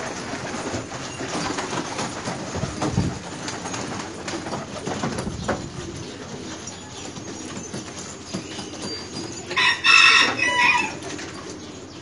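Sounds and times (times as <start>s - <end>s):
pigeons cooing: 0.0s - 12.0s
rooster crowing: 9.5s - 11.1s.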